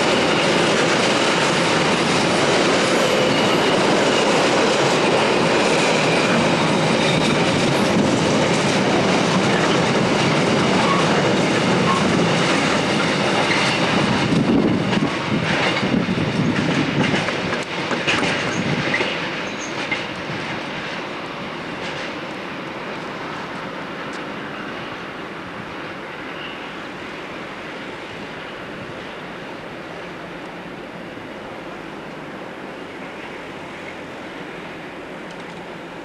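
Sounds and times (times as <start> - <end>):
train wheels clattering: 0.0 - 21.1, 21.7 - 22.3.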